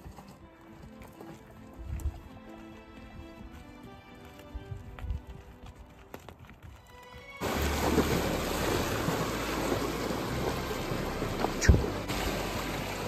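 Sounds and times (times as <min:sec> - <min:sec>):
river rushing over rocks: 0:07.4 - 0:13.0.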